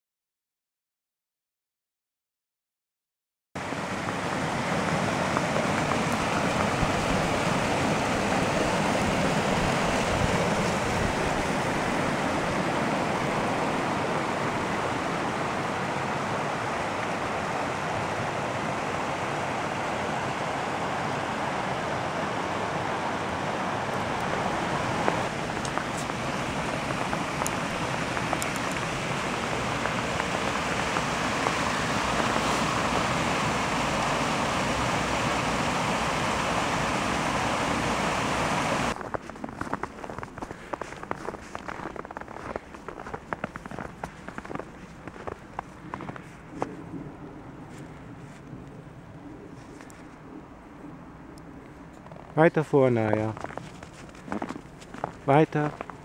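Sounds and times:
stream rushing over rocks: 0:03.6 - 0:39.0.

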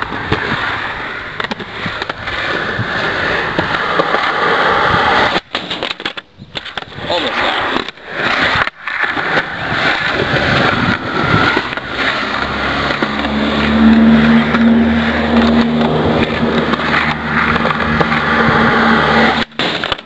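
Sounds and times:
steady rushing noise: 0:00.0 - 0:20.0
engine humming: 0:07.1 - 0:20.0.

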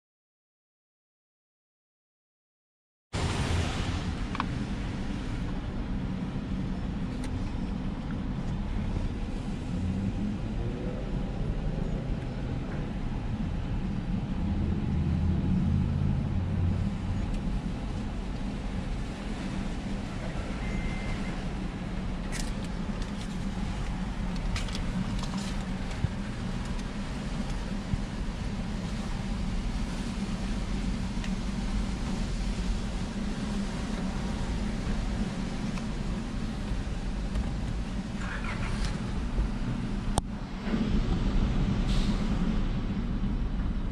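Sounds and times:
car engine idling: 0:12.5 - 0:41.7.

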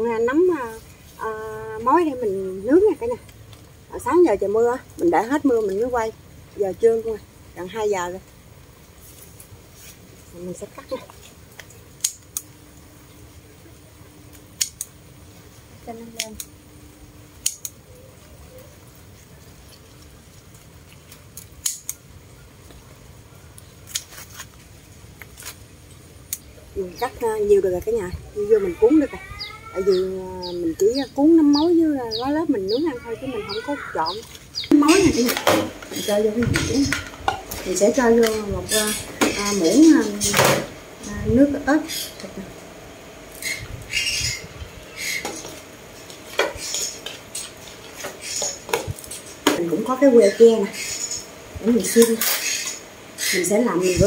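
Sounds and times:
scissors snipping stems: 0:11.6 - 0:12.5, 0:17.4 - 0:17.8, 0:21.0 - 0:22.0.

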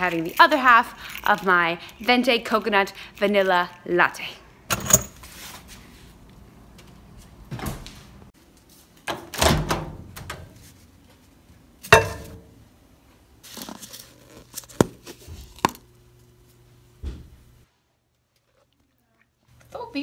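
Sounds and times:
microwave humming: 0:09.5 - 0:17.7.

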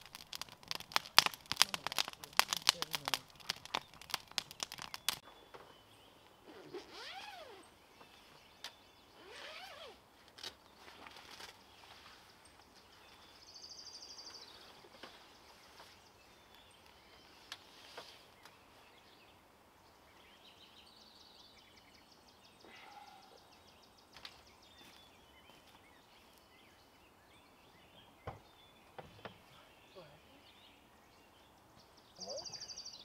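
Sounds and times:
faint songbird trills: 0:10.8 - 0:33.0.

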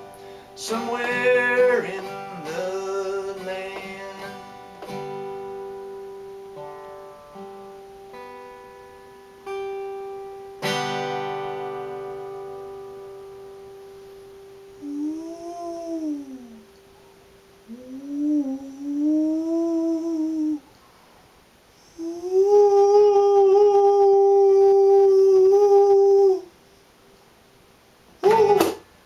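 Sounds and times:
man singing wordlessly: 0:00.0 - 0:04.9, 0:17.7 - 0:20.6, 0:22.0 - 0:26.5
acoustic guitar: 0:00.0 - 0:20.7, 0:28.2 - 0:29.0.

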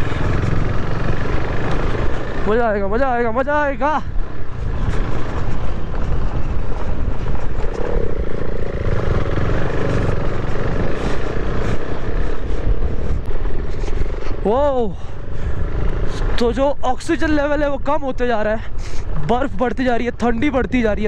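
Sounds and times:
motorcycle engine running: 0:00.0 - 0:16.5
wind rush: 0:00.9 - 0:21.0.

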